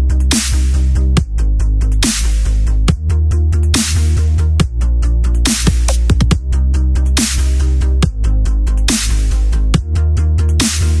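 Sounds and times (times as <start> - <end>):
electronic music with heavy bass: 0.0 - 11.0.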